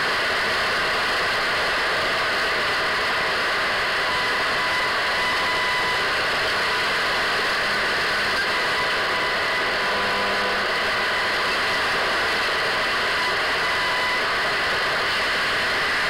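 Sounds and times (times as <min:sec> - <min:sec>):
radio static hiss: 0:00.1 - 0:16.0.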